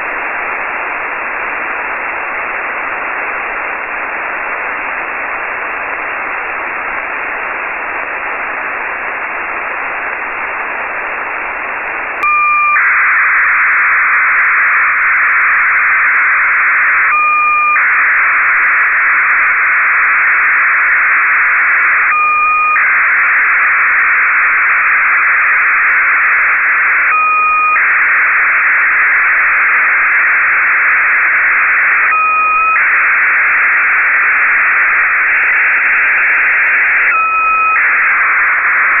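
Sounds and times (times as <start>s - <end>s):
radio receiver hiss: 0.0s - 39.0s
data signal noise: 12.0s - 39.0s
pair of steady tones: 12.2s - 39.0s.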